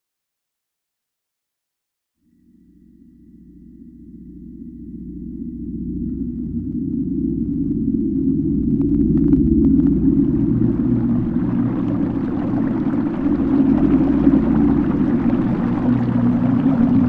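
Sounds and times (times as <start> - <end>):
deep steady drone: 2.2 - 17.0
rushing water: 9.5 - 17.0.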